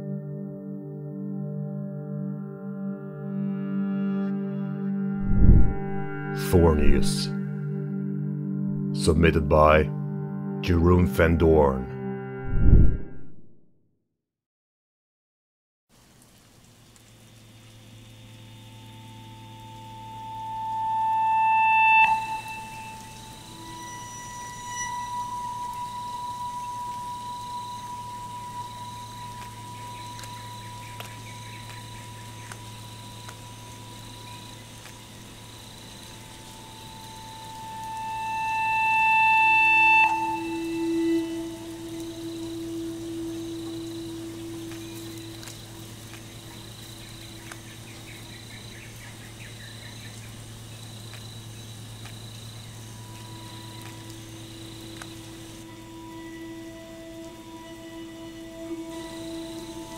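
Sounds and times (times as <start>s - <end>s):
steady high tone: 4.9s - 11.7s, 19.6s - 30.8s, 36.6s - 45.8s, 52.9s - 59.9s
low hum: 5.2s - 8.0s, 12.4s - 13.5s, 36.1s - 47.9s
insect-like chirping: 16.3s - 59.9s.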